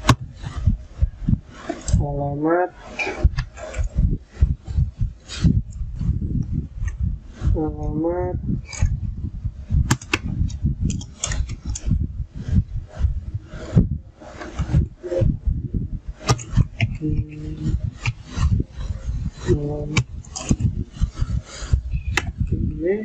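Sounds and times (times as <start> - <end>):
murmured voice: 7.5 - 8.4, 16.9 - 17.9, 22.5 - 23.0.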